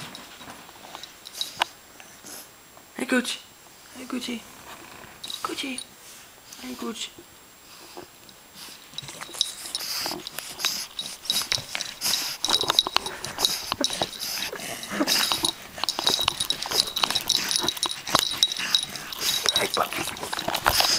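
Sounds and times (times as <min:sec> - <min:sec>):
puppies making short noises: 0:09.0 - 0:20.9.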